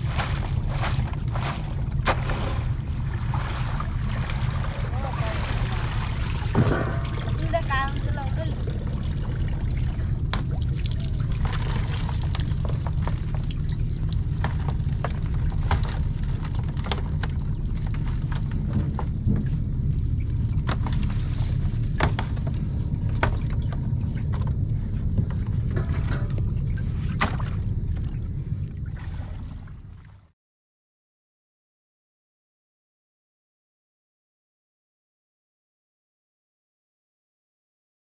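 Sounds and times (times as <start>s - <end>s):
water pouring and splashing: 0.0s - 19.1s, 20.6s - 24.4s, 28.8s - 30.3s
steady low rumble: 0.0s - 30.3s
crates knocking against wooden boat: 4.4s - 8.7s, 20.6s - 26.5s.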